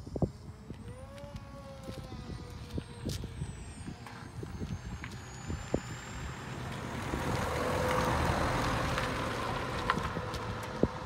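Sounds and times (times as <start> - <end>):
wind buffeting microphone: 0.0 - 11.0
vehicle passing close by: 5.6 - 11.0.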